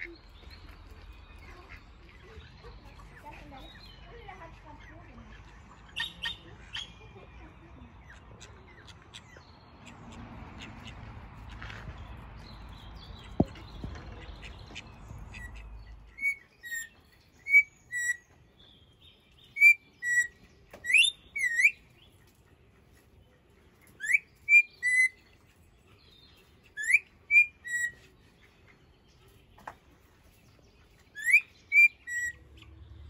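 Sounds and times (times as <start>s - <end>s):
outdoor background noise: 0.0s - 33.0s
bird whistling: 16.1s - 18.3s, 19.5s - 21.8s, 24.0s - 25.2s, 26.8s - 28.0s, 31.2s - 32.4s.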